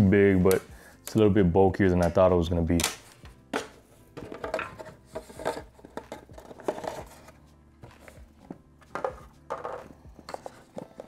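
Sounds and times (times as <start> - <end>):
cardboard rustling and scraping: 4.0 - 11.0.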